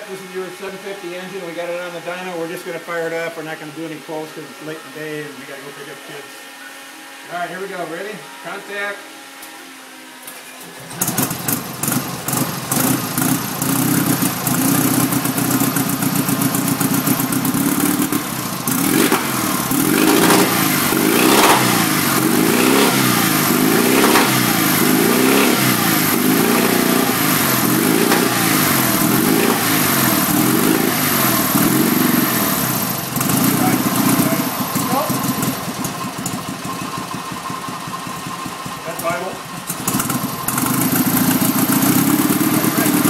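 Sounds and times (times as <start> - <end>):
flat-twin engine revving: 10.8 - 43.0.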